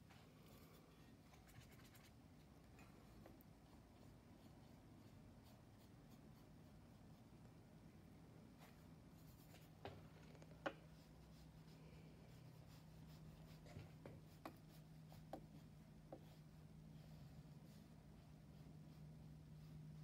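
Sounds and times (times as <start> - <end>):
paintbrush on paper: 0.4 - 7.6, 8.5 - 20.0.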